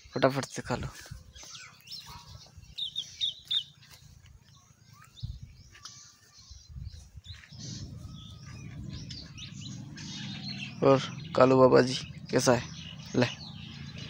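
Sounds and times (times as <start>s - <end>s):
small birds chirping: 0.0s - 14.0s
low background rumble: 7.5s - 14.0s.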